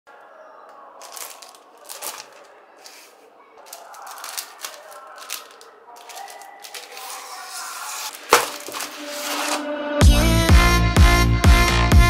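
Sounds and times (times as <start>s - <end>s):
plastic wrapping crinkling: 1.0s - 9.6s.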